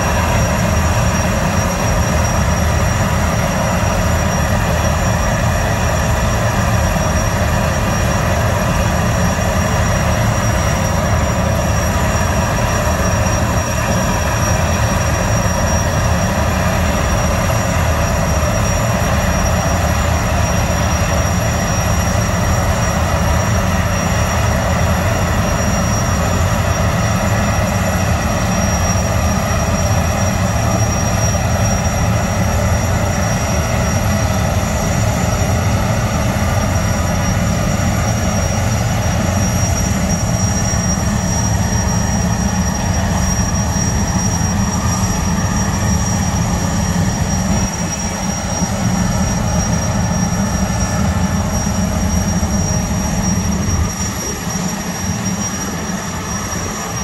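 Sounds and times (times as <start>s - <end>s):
gas turbines rumbling with whine: 0.0s - 57.0s.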